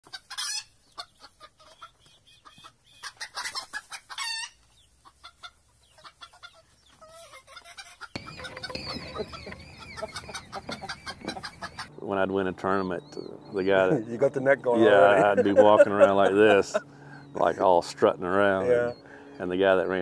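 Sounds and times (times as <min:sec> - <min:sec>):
chickens clucking: 0:00.0 - 0:20.0
birds chirping: 0:00.1 - 0:20.0.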